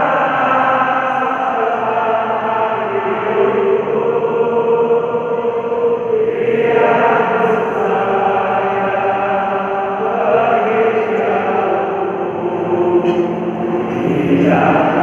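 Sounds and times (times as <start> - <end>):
stadium crowd singing: 0.0 - 15.0.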